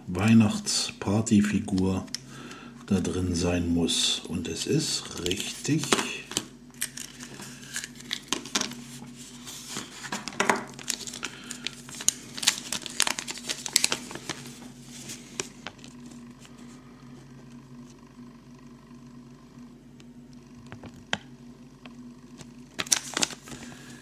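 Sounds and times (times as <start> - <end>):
paper crinkling: 5.0 - 16.8, 22.7 - 24.0.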